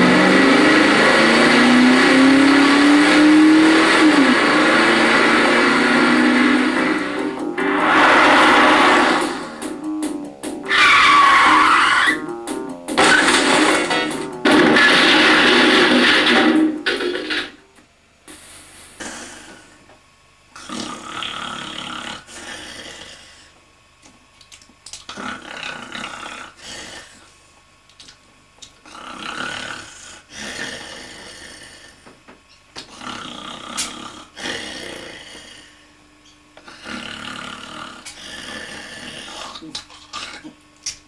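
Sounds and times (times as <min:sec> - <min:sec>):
man snoring: 0:00.0 - 0:10.3, 0:20.6 - 0:23.5, 0:25.1 - 0:27.3, 0:28.8 - 0:32.2, 0:32.8 - 0:35.8, 0:36.6 - 0:39.7.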